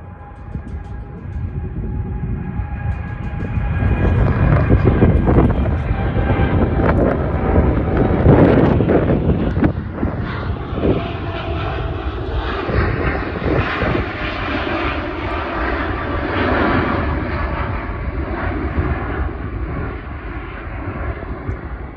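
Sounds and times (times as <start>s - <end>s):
jet engines roaring: 0.0s - 21.9s.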